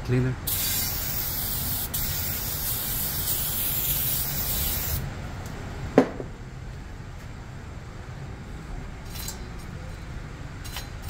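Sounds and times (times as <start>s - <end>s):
aerosol can spraying: 0.5s - 5.0s.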